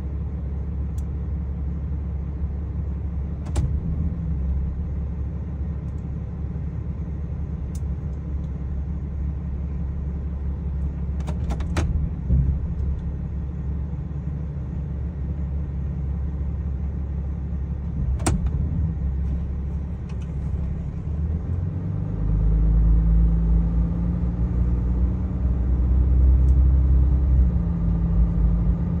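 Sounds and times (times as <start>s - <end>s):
truck engine idling: 0.0s - 22.4s
truck driving off: 9.5s - 29.0s.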